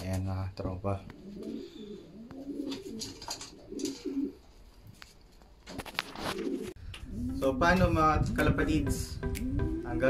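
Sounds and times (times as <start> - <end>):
pigeons cooing: 1.1 - 4.5, 6.2 - 7.8.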